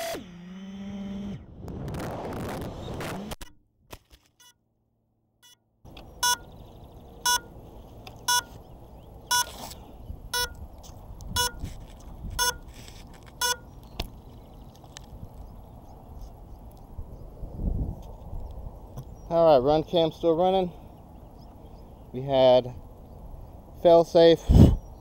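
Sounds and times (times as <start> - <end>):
crash noise burst: 1.6 - 3.4
short sharp beeps: 6.2 - 6.5, 7.2 - 7.5, 8.3 - 8.5, 9.3 - 9.6, 10.4 - 10.6, 11.4 - 11.6, 12.4 - 12.6, 13.4 - 13.6.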